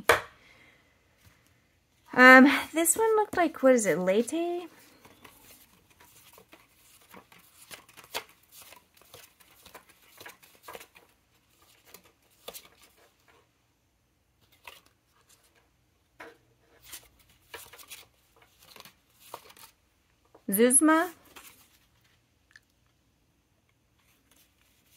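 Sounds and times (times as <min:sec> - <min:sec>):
paper cards flicking and tapping: 0:04.9 - 0:13.4, 0:16.2 - 0:20.4.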